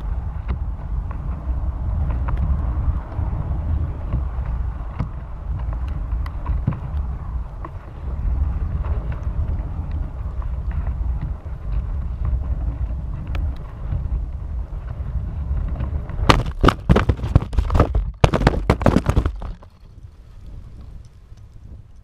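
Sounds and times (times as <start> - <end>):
wind buffeting microphone: 0.0 - 22.0
knocks and crashes on ground: 16.2 - 19.9.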